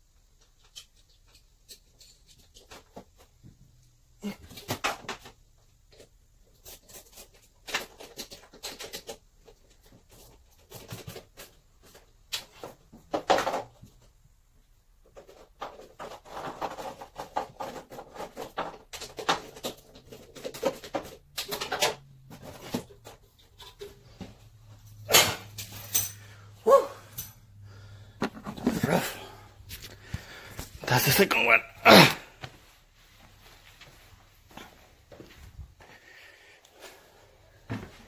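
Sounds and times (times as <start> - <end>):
small clicks knocks and scraping: 0.1 - 4.0, 4.6 - 14.2, 15.0 - 26.3.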